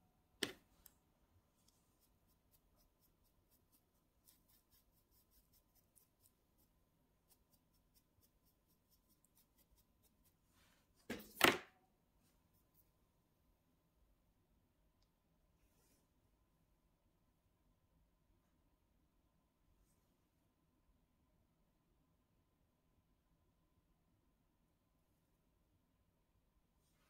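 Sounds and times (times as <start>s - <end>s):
brush ticking over nails: 1.6s - 10.2s
click: 15.0s - 15.2s.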